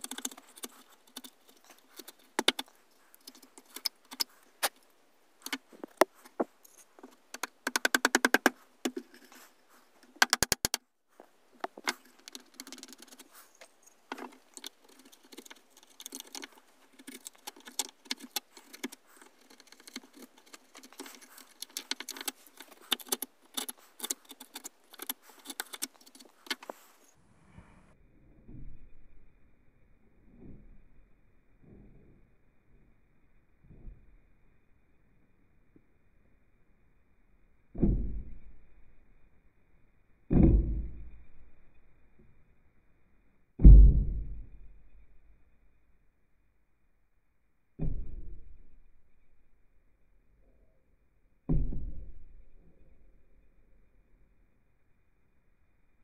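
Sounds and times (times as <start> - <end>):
chisel paring and scraping wood: 0.0 - 4.8, 5.4 - 10.8, 11.6 - 27.0.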